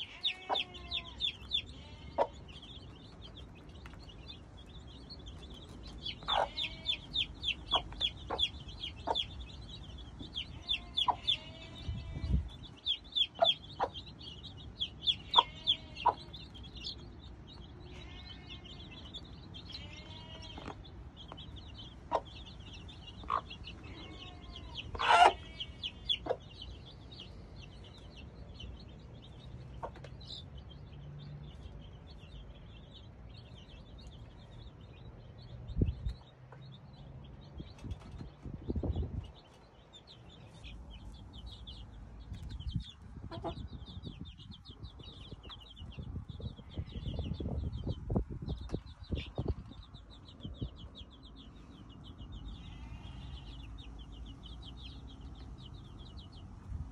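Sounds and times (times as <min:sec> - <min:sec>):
hen clucking: 0:00.0 - 0:04.0, 0:05.1 - 0:16.7, 0:19.7 - 0:27.3, 0:29.6 - 0:30.2, 0:43.2 - 0:44.2
chicks peeping: 0:00.0 - 0:56.9.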